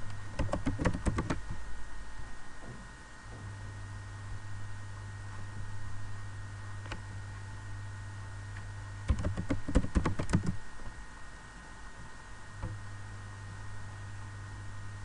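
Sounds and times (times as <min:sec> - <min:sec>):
steady low hum: 0:00.0 - 0:15.0
computer keyboard typing: 0:00.4 - 0:01.4, 0:09.1 - 0:10.6.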